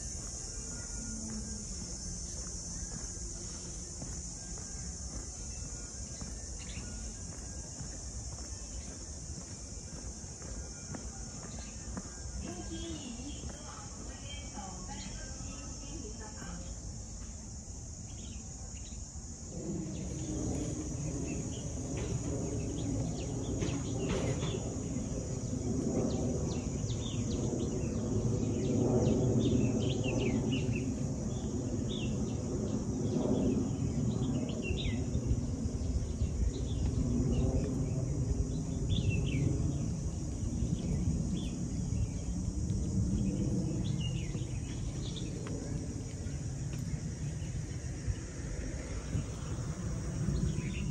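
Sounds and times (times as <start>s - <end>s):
high insect drone: 0.0s - 50.9s
low background rumble: 19.2s - 50.9s.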